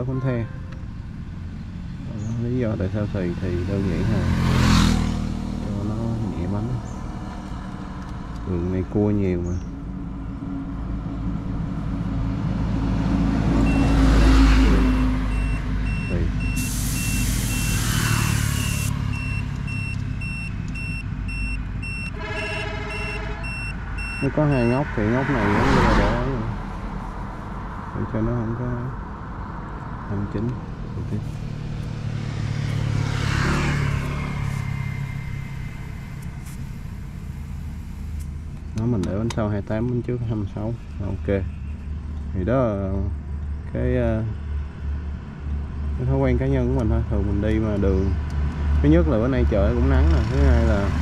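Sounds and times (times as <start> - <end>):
engine hum: 0.0 - 51.0
motor vehicle passing by: 0.9 - 21.3, 23.6 - 38.3
high electronic beep: 13.7 - 14.0, 14.8 - 24.9
air hissing from tyre valve: 16.5 - 19.0, 34.4 - 38.7.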